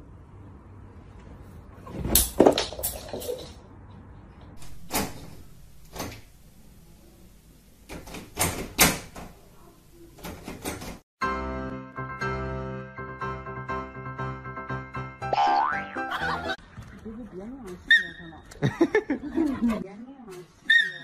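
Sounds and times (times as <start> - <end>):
door rattling: 4.6 - 6.4, 7.8 - 9.4, 10.2 - 11.0.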